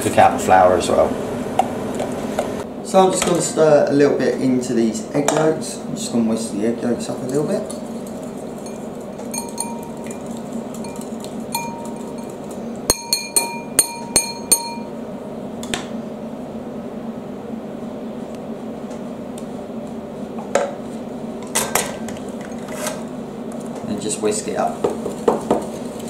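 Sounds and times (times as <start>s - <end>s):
steady low hum: 0.0s - 26.0s
whisk clinking against bowl: 8.6s - 14.9s.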